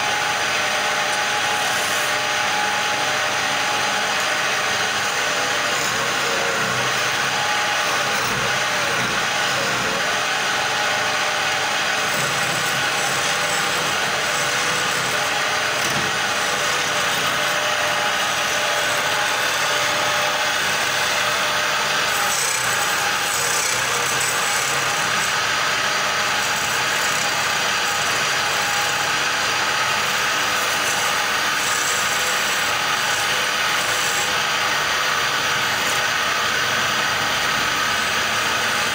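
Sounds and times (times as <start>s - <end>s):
chisel shaving spinning wood: 0.0s - 38.9s
wood lathe whine: 0.0s - 38.9s.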